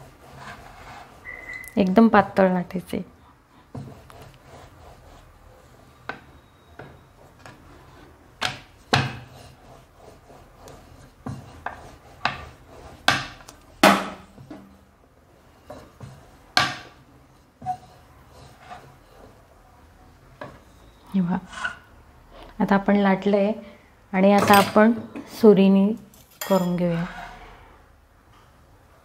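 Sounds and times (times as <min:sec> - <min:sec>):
rolling pin rubbing on dough: 0:00.0 - 0:02.4, 0:03.5 - 0:21.9
rolling pin knocking a metal board: 0:13.1 - 0:14.3.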